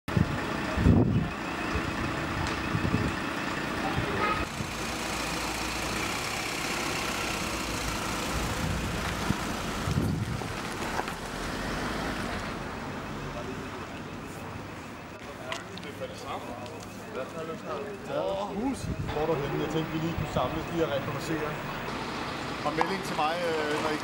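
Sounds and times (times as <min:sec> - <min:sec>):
motor vehicles rumbling: 0:00.1 - 0:24.0.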